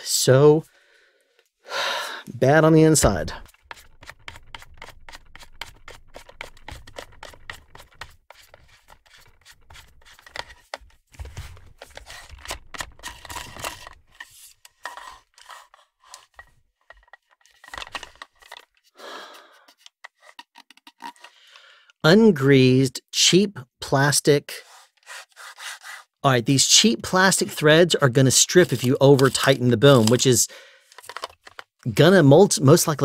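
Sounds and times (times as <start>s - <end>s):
plastic threads grating: 3.4s - 18.9s, 19.6s - 21.3s, 28.3s - 31.8s.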